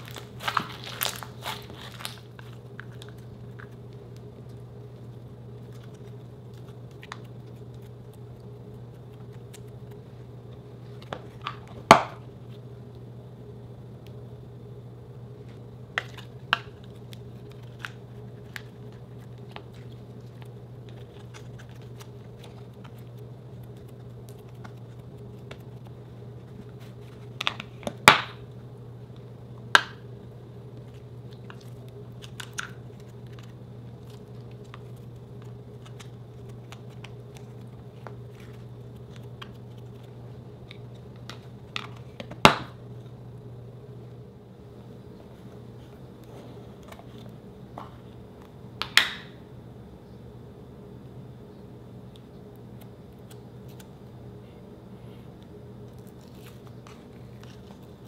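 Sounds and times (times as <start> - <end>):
steady low hum: 0.0 - 58.0.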